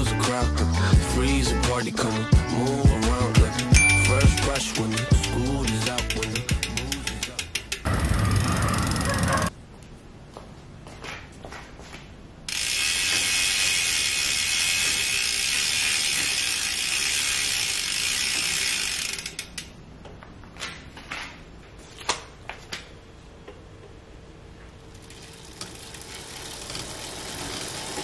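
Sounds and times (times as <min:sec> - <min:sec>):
bicycle hub ratchet clicking: 0:03.2 - 0:09.5, 0:12.5 - 0:19.8, 0:24.9 - 0:28.0.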